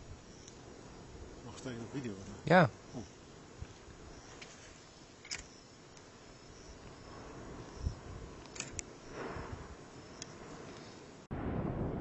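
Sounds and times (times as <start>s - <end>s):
sharp clicks: 5.2s - 6.1s, 8.4s - 8.9s
lava fountain rumble: 6.1s - 12.0s.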